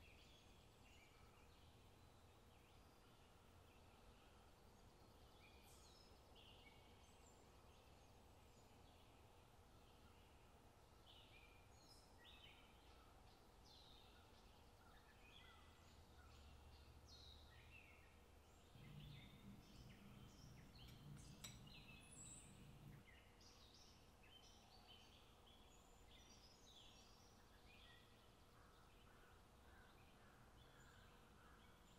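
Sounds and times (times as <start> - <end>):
small birds chirping: 0.0 - 31.9
low background rumble: 15.8 - 23.1.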